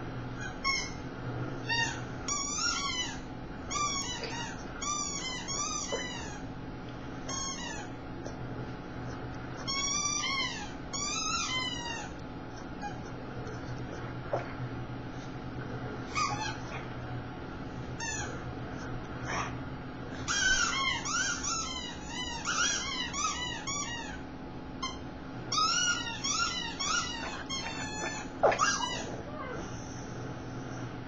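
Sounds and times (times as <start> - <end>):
squeaky toy squeaking: 0.4 - 1.0, 1.7 - 6.4, 7.3 - 7.9, 9.6 - 12.1, 18.0 - 18.3, 20.3 - 24.2, 24.8 - 29.1.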